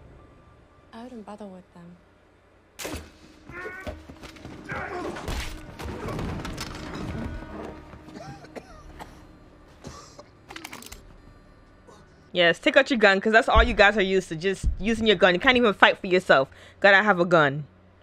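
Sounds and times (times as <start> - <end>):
orchestral score music: 4.8 - 11.8.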